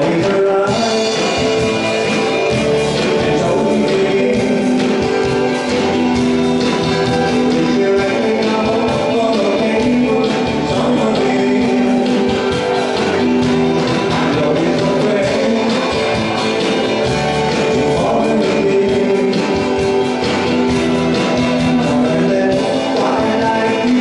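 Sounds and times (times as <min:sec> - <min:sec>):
acoustic guitar strumming: 0:00.0 - 0:24.0
man singing: 0:00.0 - 0:24.0
steady beat: 0:00.0 - 0:24.0.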